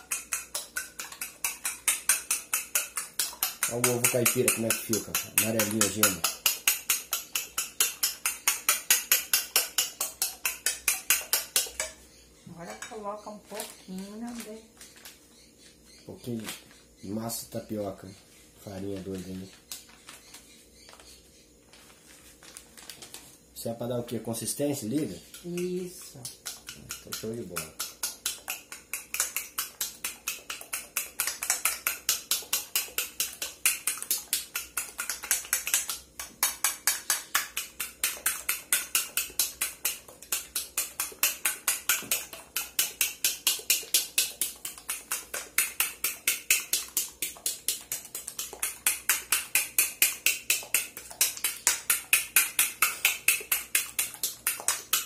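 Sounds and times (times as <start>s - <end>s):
whisk clicking against glass bowl: 0.0s - 12.0s, 24.4s - 55.0s.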